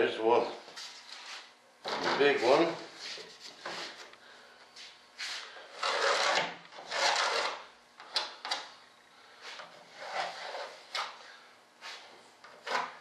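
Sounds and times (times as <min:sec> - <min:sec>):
knife scraping through plywood: 0:05.3 - 0:07.7, 0:09.8 - 0:11.0.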